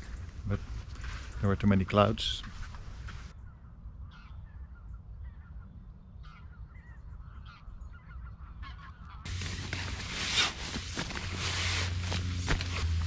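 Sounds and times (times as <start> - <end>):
sleeping bag fabric rustling: 9.3 - 13.0.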